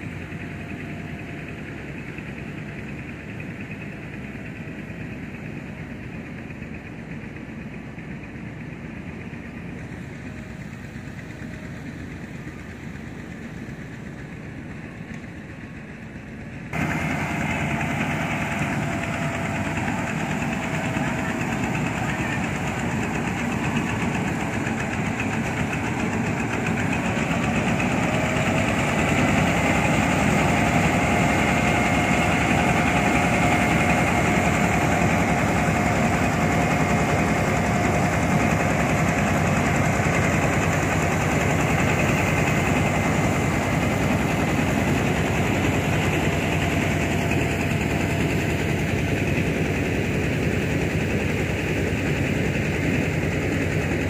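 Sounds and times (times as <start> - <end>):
rice mill engine running: 0.0 - 54.0
machine whine: 16.7 - 54.0.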